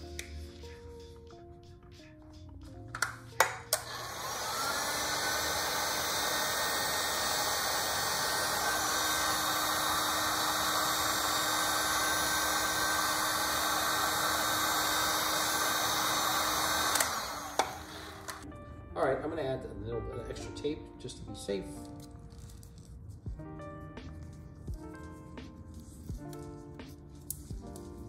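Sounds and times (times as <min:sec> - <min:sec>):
heat gun fan blowing: 0:03.4 - 0:18.4.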